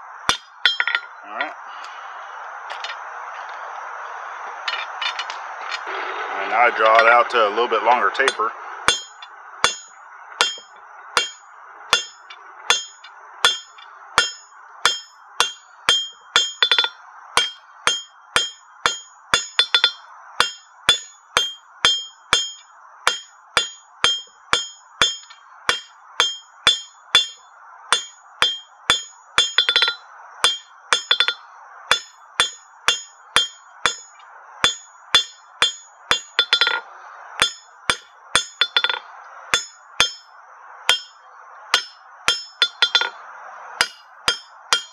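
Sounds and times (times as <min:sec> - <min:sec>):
hammer striking steel on anvil: 0:00.3 - 0:01.1, 0:08.2 - 0:36.8, 0:37.4 - 0:40.3, 0:40.9 - 0:43.2, 0:43.8 - 0:44.9.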